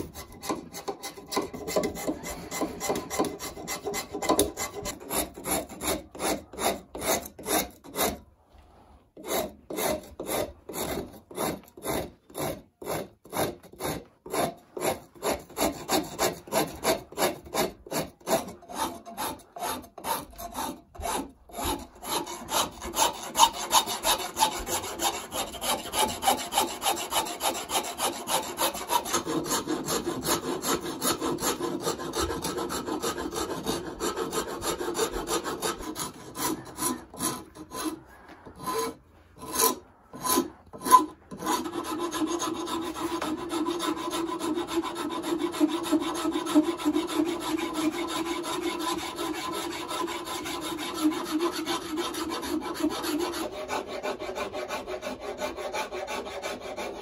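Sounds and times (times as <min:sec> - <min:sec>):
hand rasp on wood: 0:00.0 - 0:08.3, 0:09.1 - 0:57.0.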